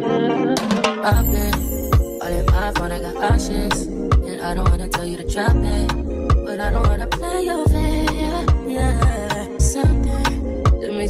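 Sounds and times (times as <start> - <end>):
kick drum: 1.1 - 2.7, 4.1 - 4.9, 6.3 - 7.0, 8.5 - 10.1
deep bass: 1.1 - 10.8.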